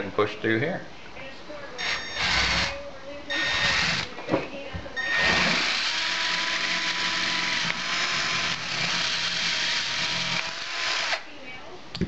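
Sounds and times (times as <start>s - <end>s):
power drill drilling through metal: 1.8s - 2.8s, 3.4s - 4.1s, 5.0s - 11.2s.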